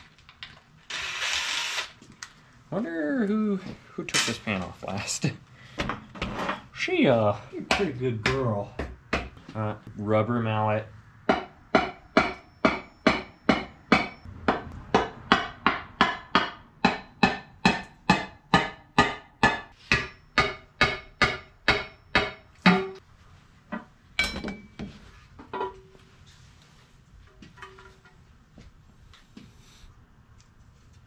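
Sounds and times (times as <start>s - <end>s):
rubber mallet striking metal pan: 11.3s - 23.0s.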